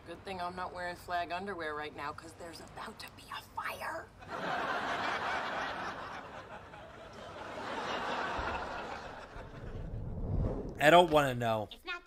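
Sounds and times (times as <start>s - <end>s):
studio audience laughing: 4.2s - 10.0s.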